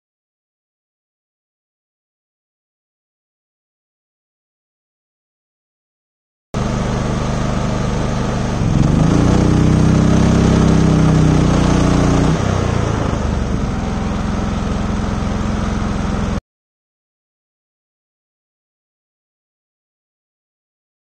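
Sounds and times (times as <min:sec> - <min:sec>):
generator engine running and revving: 0:06.6 - 0:16.4.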